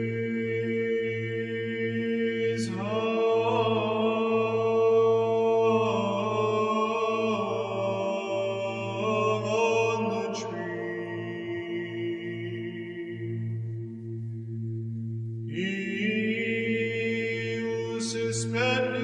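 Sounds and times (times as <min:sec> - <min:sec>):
chant-like vocal music: 0:00.0 - 0:19.0.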